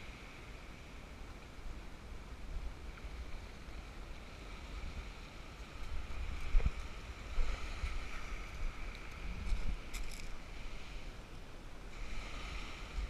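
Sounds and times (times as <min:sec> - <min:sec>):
wind rumbling on microphone: 0:00.0 - 0:13.0
waves washing onto pebbles: 0:04.2 - 0:11.3, 0:11.9 - 0:13.0.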